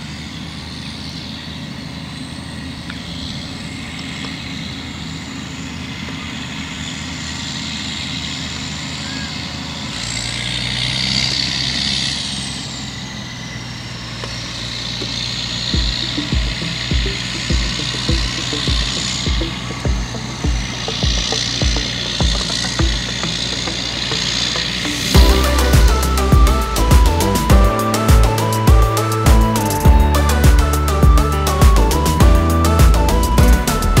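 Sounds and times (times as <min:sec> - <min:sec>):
tractor diesel engine under load: 0:00.0 - 0:34.0
high whine: 0:12.8 - 0:34.0
music beat: 0:15.0 - 0:34.0.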